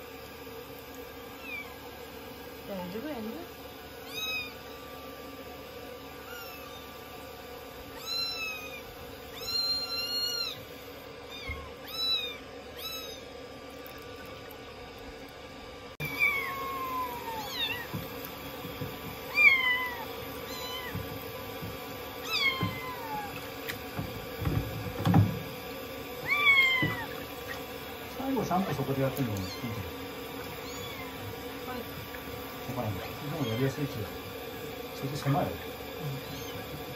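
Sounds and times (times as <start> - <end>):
running shower water: 0.0 - 36.9
kittens mewing: 4.0 - 4.8, 6.2 - 6.8, 7.9 - 10.7, 11.3 - 13.3, 16.0 - 18.1, 19.2 - 21.3, 22.2 - 23.7, 26.2 - 27.7, 29.2 - 32.3, 32.9 - 34.0, 35.9 - 36.9.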